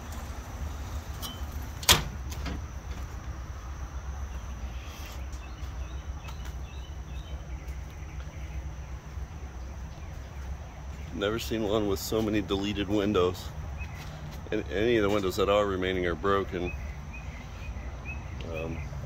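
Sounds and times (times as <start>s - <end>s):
insect drone: 0.0s - 9.9s.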